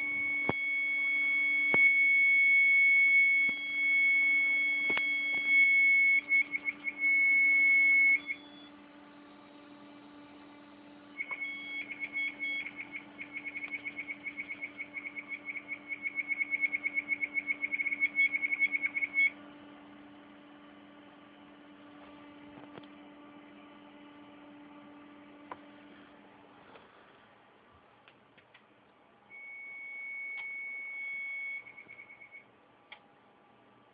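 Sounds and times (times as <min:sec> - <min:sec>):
hard disk short beeps: 0:00.0 - 0:08.8, 0:11.2 - 0:19.3, 0:29.3 - 0:32.5
computer low hum: 0:00.0 - 0:33.9
hard disk drive whine: 0:00.0 - 0:33.9.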